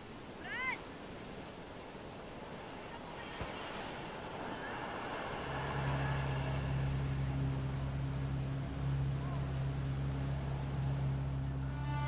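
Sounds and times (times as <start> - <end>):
faint surf hiss: 0.0 - 12.0
low engine-like hum: 3.5 - 12.0.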